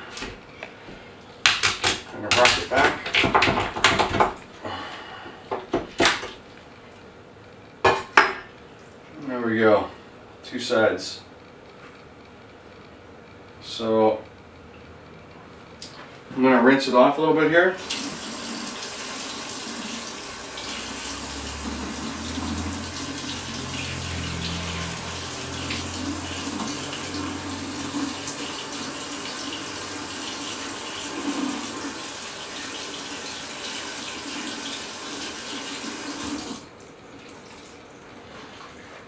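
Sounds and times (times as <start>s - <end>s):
faucet water splashing: 17.8s - 38.7s.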